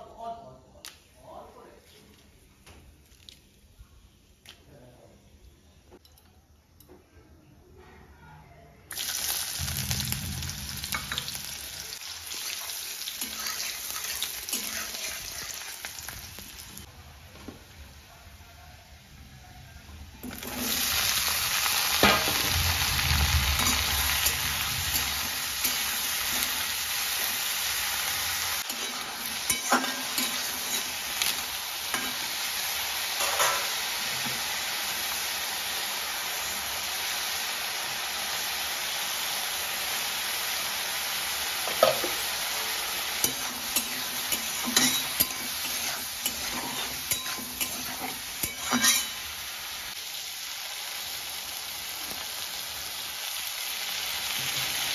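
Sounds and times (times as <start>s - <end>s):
eggplant sizzling in hot oil: 8.9s - 16.9s, 20.2s - 54.9s
spatula scraping a wok: 28.6s - 32.2s, 43.2s - 49.3s.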